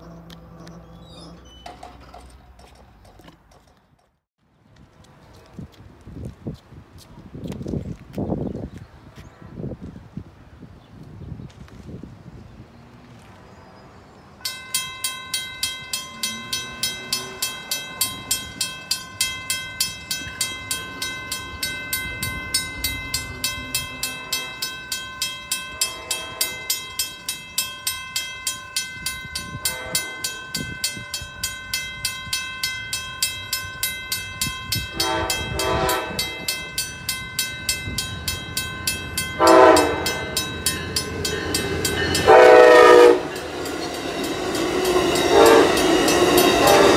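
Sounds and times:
railroad crossing bell ringing: 14.4s - 46.9s
train horn blasts: 16.1s - 18.2s, 25.8s - 26.9s, 29.4s - 30.7s, 34.8s - 36.8s, 39.3s - 46.9s.

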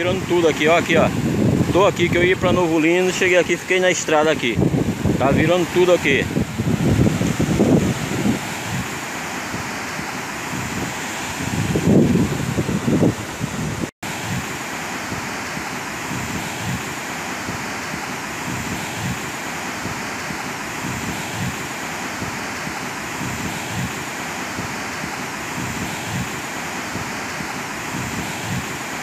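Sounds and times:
wind buffeting microphone: 0.0s - 2.8s, 4.4s - 15.2s, 20.8s - 21.6s
river water rushing: 0.0s - 29.0s.

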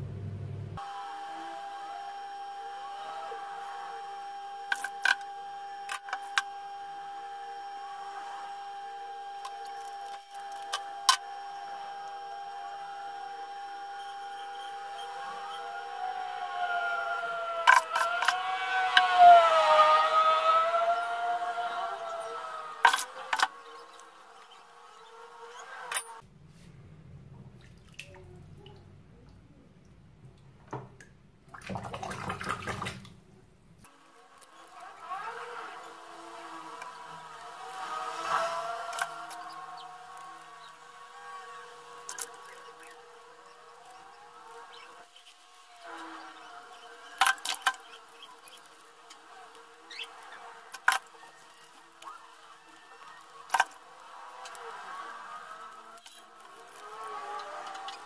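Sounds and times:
faint steady hum: 0.0s - 31.5s
hands splashing water in a basin: 27.6s - 28.3s, 31.5s - 33.2s.

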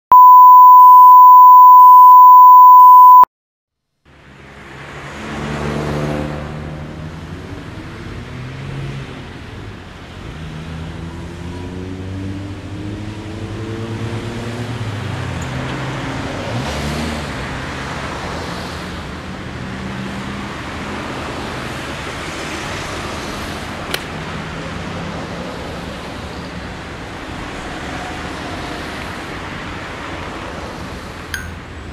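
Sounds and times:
steady test tone: 0.1s - 3.3s
cars driving by: 4.1s - 31.9s.

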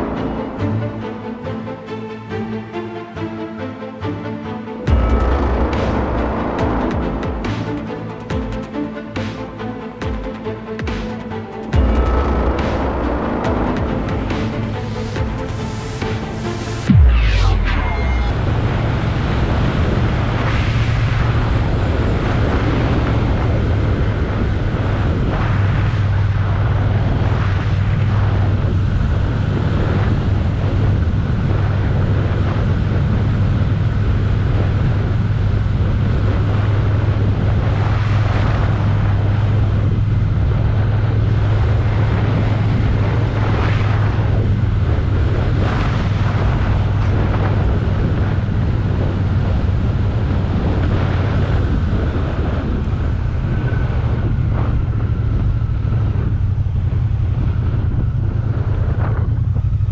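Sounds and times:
wind noise on microphone: 0.0s - 3.3s, 4.9s - 59.9s
motorcycle engine running: 4.9s - 8.7s, 11.7s - 17.1s, 38.6s - 59.9s.

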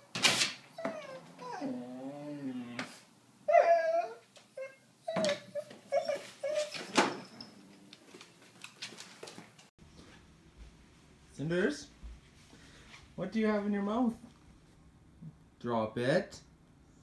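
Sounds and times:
dog whining and yipping: 0.7s - 2.8s, 3.5s - 7.8s.

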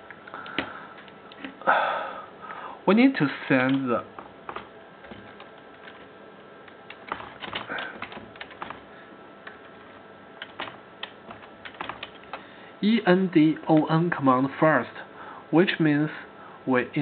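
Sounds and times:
keyboard key clicks: 3.7s - 6.1s, 6.7s - 9.7s, 10.4s - 12.4s.

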